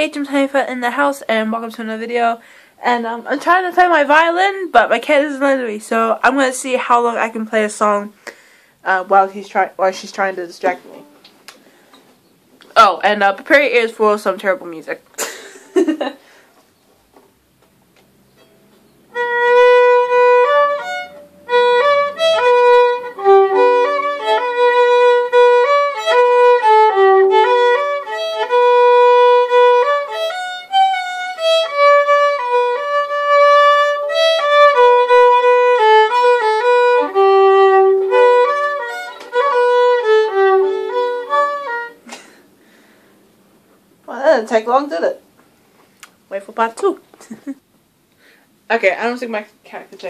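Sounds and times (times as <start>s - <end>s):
solo violin melody: 18.4s - 42.1s.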